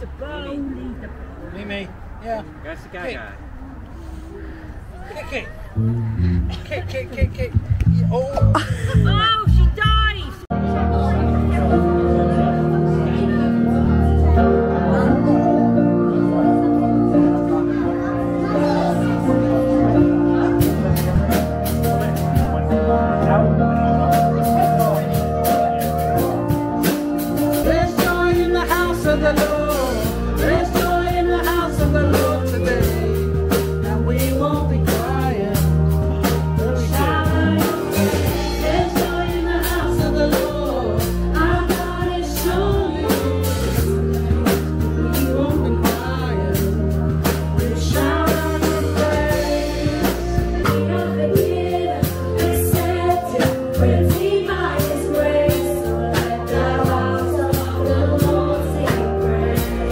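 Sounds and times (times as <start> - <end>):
bass: 0.0 - 59.9
steady drum beat: 6.4 - 10.4, 19.9 - 22.7, 24.0 - 59.9
person singing: 10.5 - 59.9.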